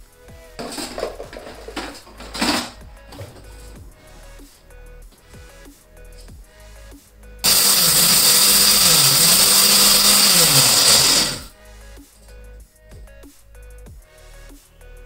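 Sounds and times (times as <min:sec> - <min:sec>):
mixer grinder motor grinding: 0:00.6 - 0:03.7, 0:07.4 - 0:11.5.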